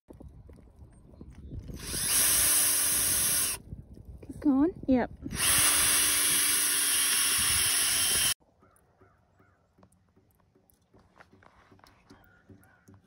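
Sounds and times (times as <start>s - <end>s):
cordless drill whirring: 1.7s - 3.6s, 5.3s - 8.4s
faint bird calls: 8.5s - 10.2s.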